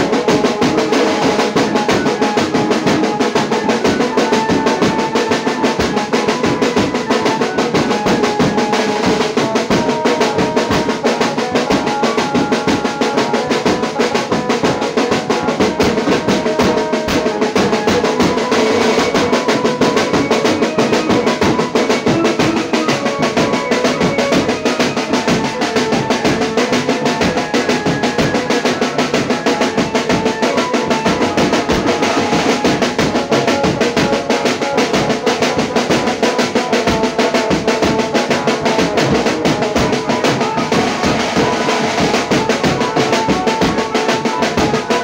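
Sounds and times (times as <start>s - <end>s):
fast drumming with snare rolls: 0.0s - 45.0s.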